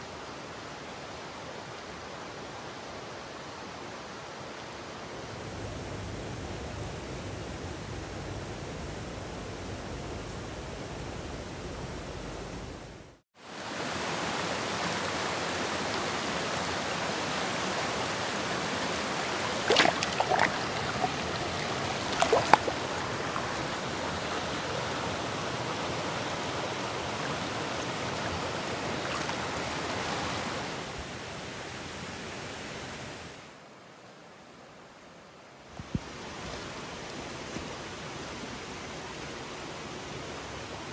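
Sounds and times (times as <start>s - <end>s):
stream rushing over rocks: 13.4s - 34.0s.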